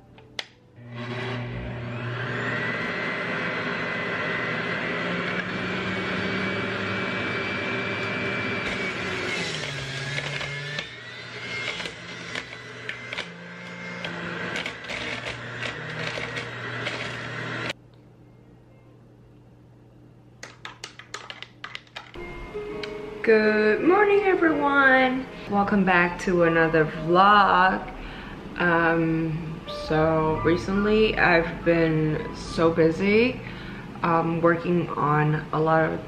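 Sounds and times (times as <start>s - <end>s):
juicer motor whine: 0.8s - 17.8s.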